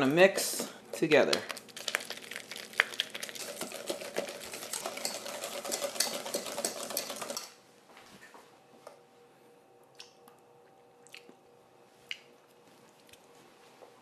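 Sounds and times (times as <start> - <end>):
whisk beating in metal bowl: 2.6 - 7.6.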